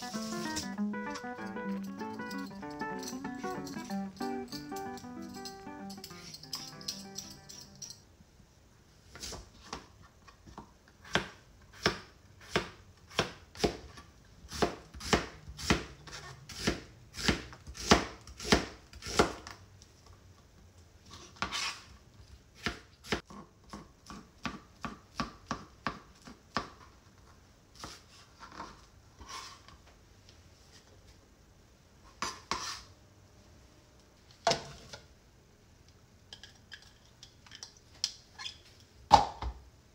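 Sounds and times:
knife chopping on cutting board: 14.5s - 15.9s, 16.6s - 19.4s.

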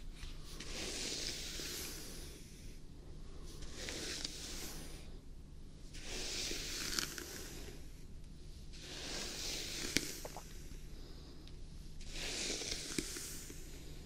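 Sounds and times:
hairbrush swishing through hair: 0.0s - 2.4s, 3.5s - 5.1s, 5.9s - 7.8s, 8.6s - 10.7s, 12.0s - 14.0s.

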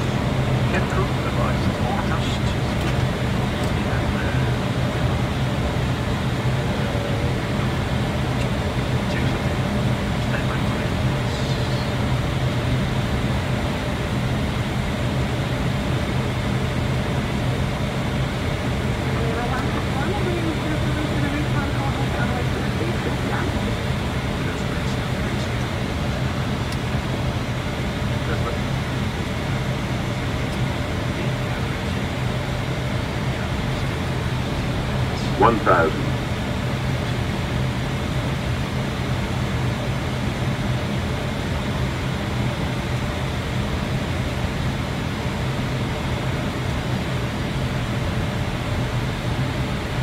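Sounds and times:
low drone: 0.0s - 39.6s
airflow rushing in cockpit: 0.0s - 50.0s
low constant hum: 0.0s - 50.0s.

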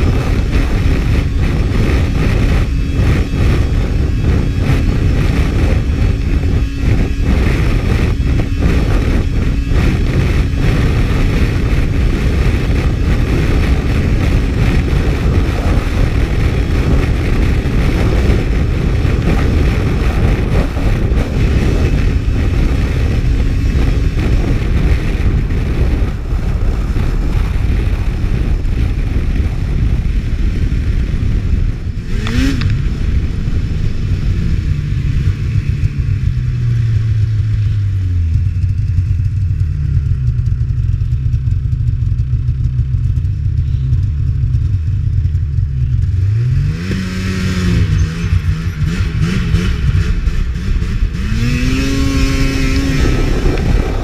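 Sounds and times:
snowmobile engine at speed: 0.0s - 54.0s
wind rushing over microphone: 0.0s - 54.0s.

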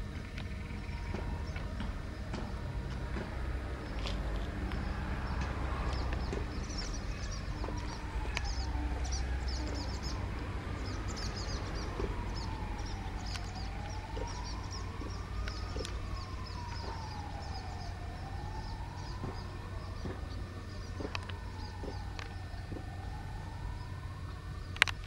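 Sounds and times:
distant siren wailing: 0.0s - 25.0s
low rumble: 0.0s - 25.0s
small birds chirping: 3.8s - 23.0s.

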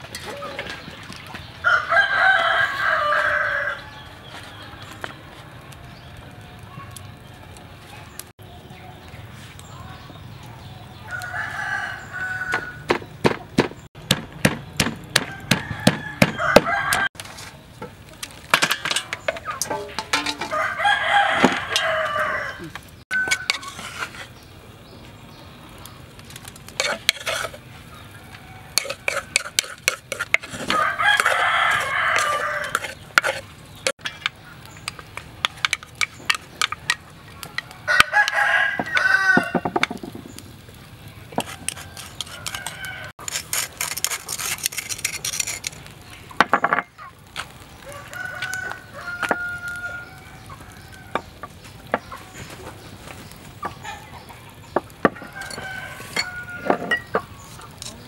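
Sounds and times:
rooster crowing: 1.6s - 4.1s, 11.0s - 12.9s, 15.2s - 17.2s, 20.4s - 23.7s, 30.6s - 32.9s, 37.6s - 39.8s, 41.4s - 43.2s, 47.8s - 51.2s, 55.0s - 57.2s
wooden pestle pounding in mortar: 12.9s - 16.7s.

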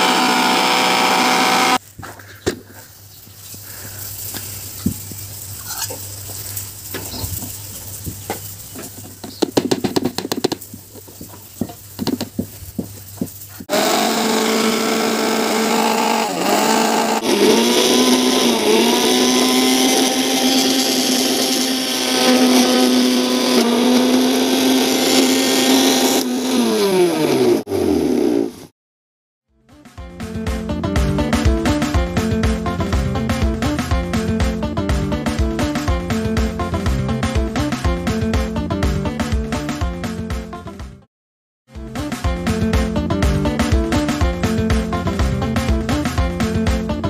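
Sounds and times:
blender motor grinding: 0.0s - 1.8s, 13.6s - 28.7s.

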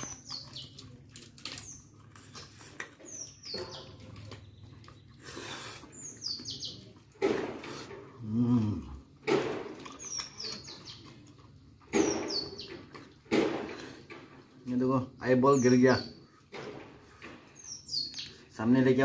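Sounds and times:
sucking and slurping: 0.0s - 14.6s
small birds chirping: 0.0s - 19.0s.

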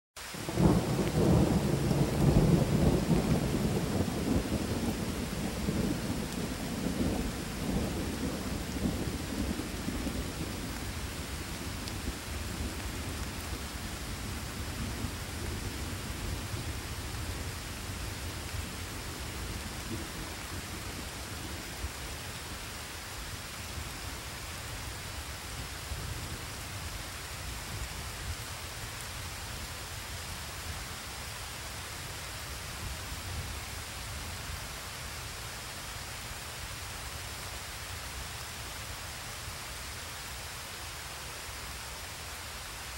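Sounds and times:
steady rain: 0.2s - 42.9s
thunder rumbling: 0.4s - 21.9s.

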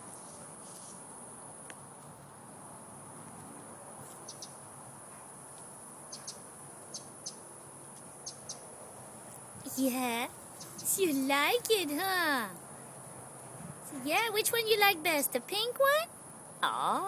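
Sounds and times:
high insect chirps: 0.0s - 3.4s, 4.0s - 17.0s.

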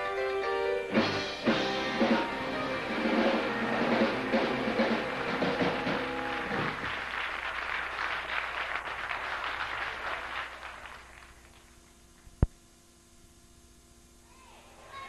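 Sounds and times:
band playing chord: 0.0s - 6.9s
audience applause: 1.5s - 12.0s.

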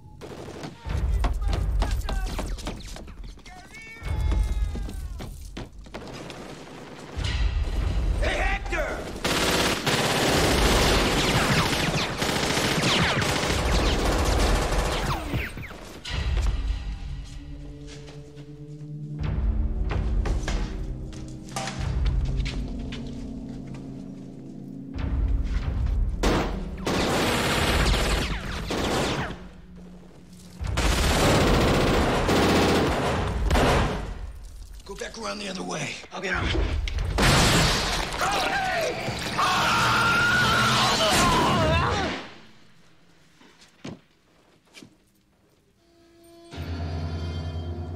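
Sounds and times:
submachine guns firing bursts: 6.0s - 7.2s, 9.0s - 15.3s, 26.8s - 29.4s, 30.7s - 34.1s
automatic gunfire: 9.2s - 15.2s.

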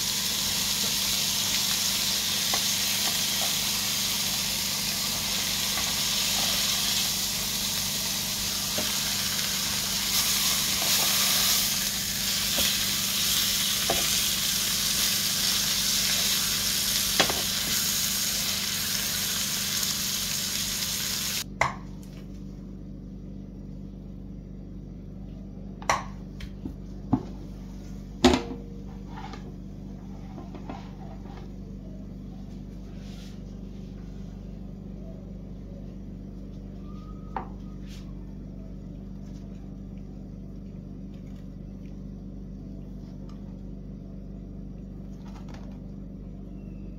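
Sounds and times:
chicken sizzling in grill pan: 0.0s - 21.4s
low steady hum: 0.0s - 46.9s.

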